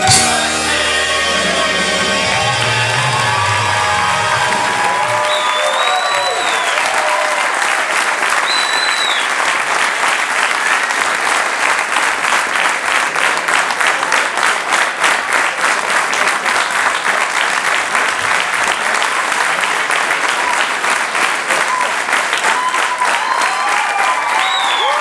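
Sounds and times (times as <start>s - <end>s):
audience applauding: 0.0s - 25.0s
whistle from crowd: 5.1s - 7.0s, 8.4s - 9.3s, 24.3s - 25.0s.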